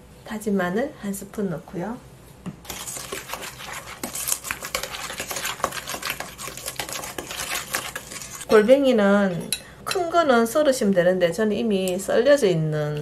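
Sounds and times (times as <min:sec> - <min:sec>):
spatula scraping in bowl: 0:02.6 - 0:08.6.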